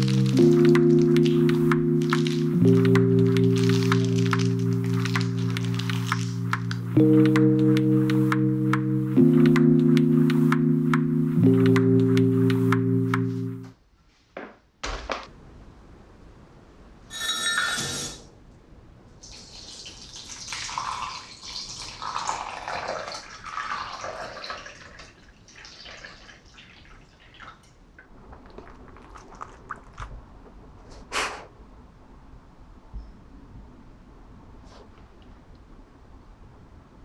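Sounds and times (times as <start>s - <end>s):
water pouring into cup: 19.2s - 27.6s, 28.2s - 30.1s.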